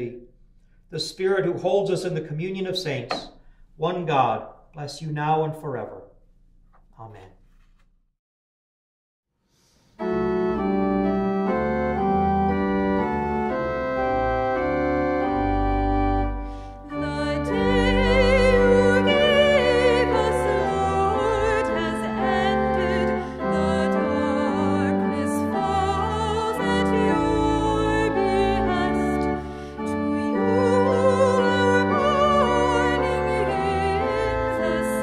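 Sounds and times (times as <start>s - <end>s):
church organ chords: 10.0s - 35.0s
woman singing with vibrato: 16.9s - 35.0s.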